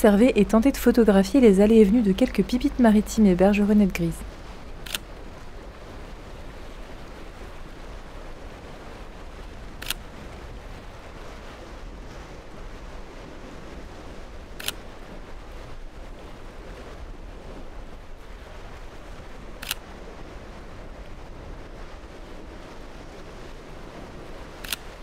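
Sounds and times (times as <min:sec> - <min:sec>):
surf on shore: 0:00.0 - 0:25.0
camera shutter clicks: 0:04.8 - 0:05.0, 0:09.8 - 0:10.0, 0:19.6 - 0:19.8, 0:24.6 - 0:24.9.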